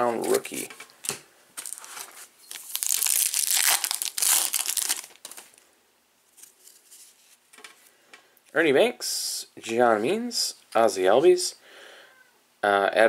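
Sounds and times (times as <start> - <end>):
foil wrapper crinkling and tearing: 1.6 - 5.6.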